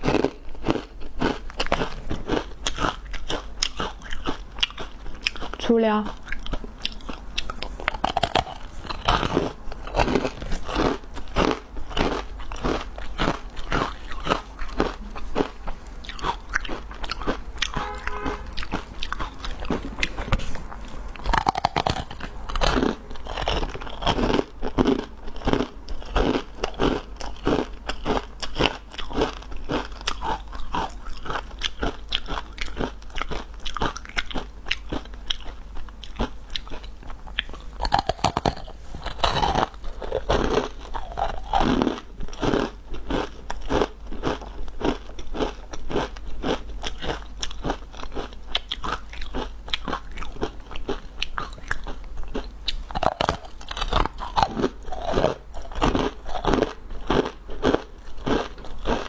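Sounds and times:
crunchy bar chewing: 0.0 - 59.0.

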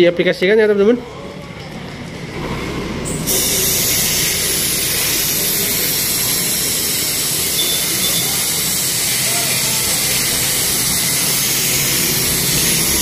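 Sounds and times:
aerosol can spraying hiss: 3.3 - 13.0.

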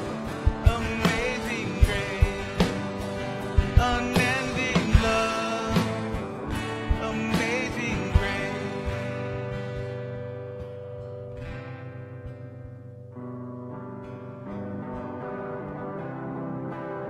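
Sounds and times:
live worship band music: 0.0 - 10.8.

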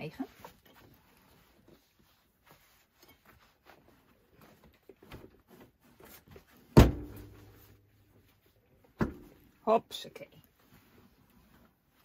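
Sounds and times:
fabric rustling: 0.0 - 9.7, 10.3 - 12.0.

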